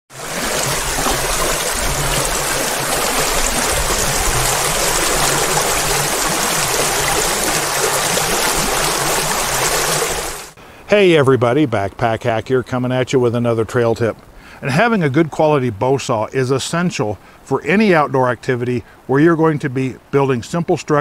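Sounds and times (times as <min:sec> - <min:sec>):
creek water rushing over rocks: 0:00.1 - 0:10.6.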